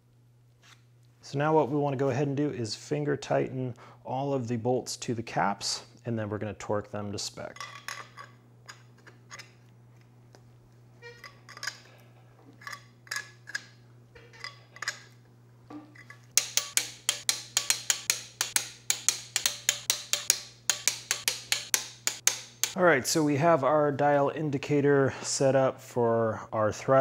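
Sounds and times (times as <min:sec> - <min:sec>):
socket wrench ratchet clicking: 0:16.4 - 0:22.8.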